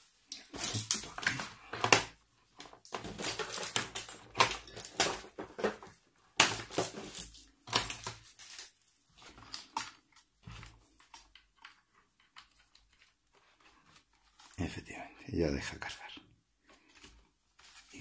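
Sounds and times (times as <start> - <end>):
laptop and cables handled: 0.2 - 14.7.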